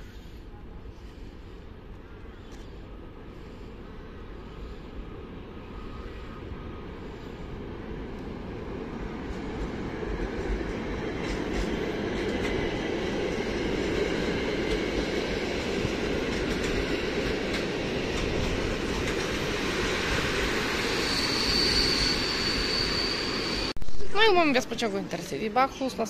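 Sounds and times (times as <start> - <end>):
train wheels rumbling on track: 0.0 - 26.0
thin high squeal: 20.9 - 23.7.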